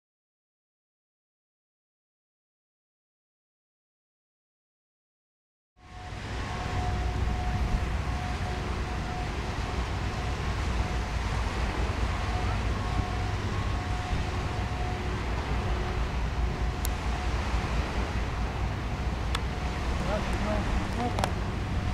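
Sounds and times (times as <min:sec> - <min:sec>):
faint tones: 0:05.8 - 0:21.9
wind rumbling on microphone: 0:05.8 - 0:21.9.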